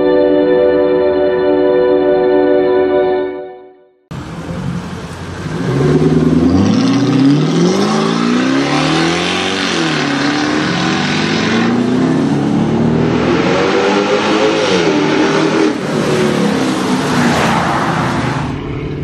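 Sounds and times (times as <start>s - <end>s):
car engine accelerating hard: 4.1s - 19.0s.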